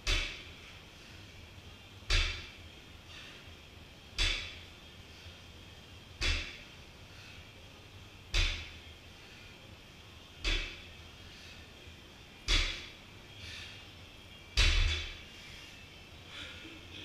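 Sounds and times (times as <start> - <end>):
barbell thudding on platform: 2.1 - 2.5, 8.3 - 8.7, 12.5 - 12.9, 14.6 - 15.1.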